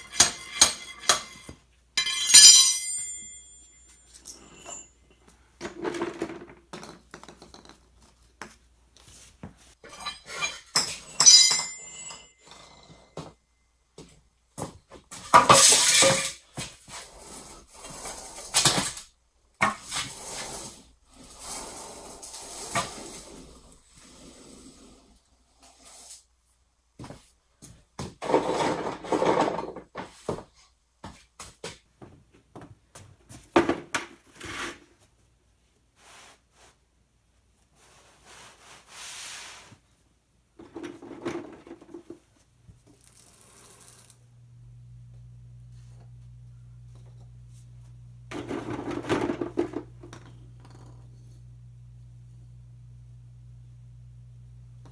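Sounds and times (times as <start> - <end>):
balls rolling on concrete: 5.6 - 9.1, 40.5 - 45.2, 46.0 - 51.6
golf balls knocking together: 5.7 - 8.6
carpet rubbing on concrete floor: 16.6 - 18.6, 19.7 - 26.4, 35.9 - 36.9, 37.6 - 40.1, 40.8 - 44.2
low steady hum: 42.6 - 54.9.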